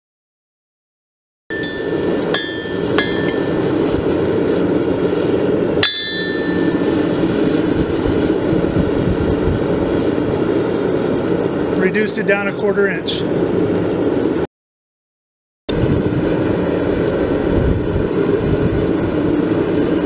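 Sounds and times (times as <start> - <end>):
hammer striking steel on anvil: 1.5 - 4.0, 5.8 - 7.7
gas forge roar: 1.5 - 14.4.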